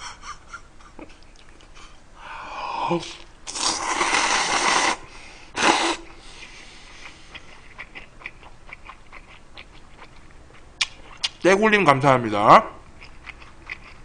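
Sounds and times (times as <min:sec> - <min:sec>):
soft wet chewing: 0:01.0 - 0:02.0, 0:06.1 - 0:11.4, 0:12.8 - 0:14.0
slurping broth from a bowl: 0:03.5 - 0:05.0.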